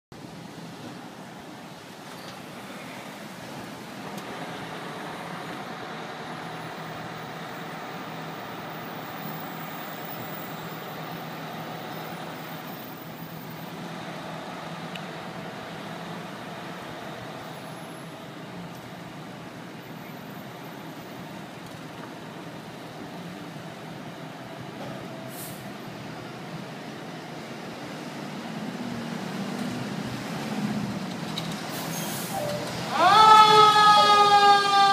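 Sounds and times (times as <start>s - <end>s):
cars passing: 2.0s - 19.7s, 27.4s - 34.9s.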